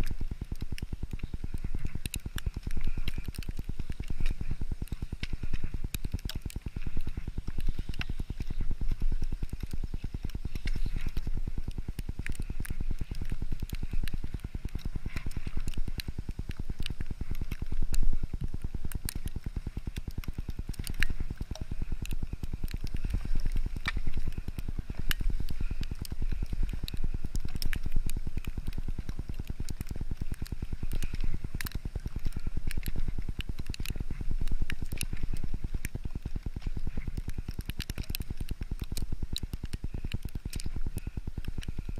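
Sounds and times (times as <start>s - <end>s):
crackling clicks: 0.0s - 41.9s
wind rumbling on microphone: 0.0s - 41.9s.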